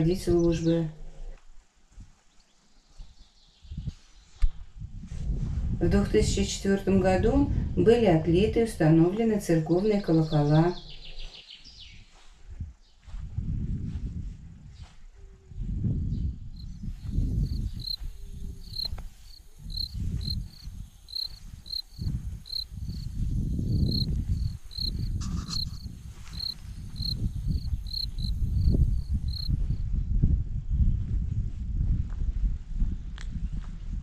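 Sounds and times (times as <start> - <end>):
cricket chirping: 16.6 - 29.6.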